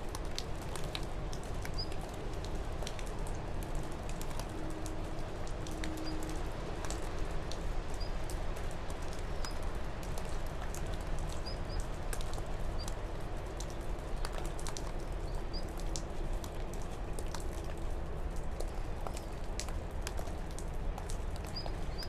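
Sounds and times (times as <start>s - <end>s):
light ticks and patter: 0.0s - 22.0s.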